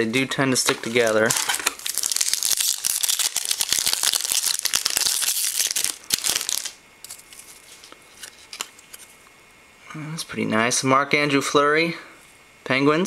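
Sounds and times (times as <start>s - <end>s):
foil pack tearing and crinkling: 0.8s - 7.8s.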